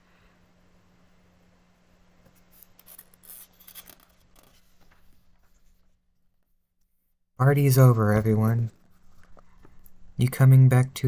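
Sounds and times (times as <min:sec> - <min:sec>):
book page turning: 0:02.2 - 0:05.8.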